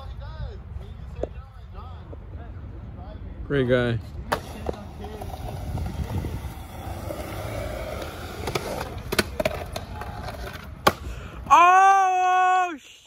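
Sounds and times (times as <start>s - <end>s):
skateboard wheels rolling on concrete: 0.0s - 13.0s
skateboard clacking on ledge: 7.3s - 11.0s
person shouting: 11.5s - 12.9s.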